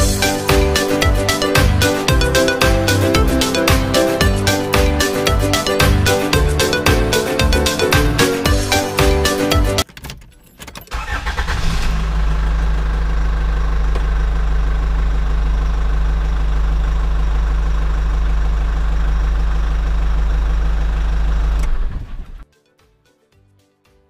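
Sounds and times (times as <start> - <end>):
vehicle engine idling: 11.1 - 22.4.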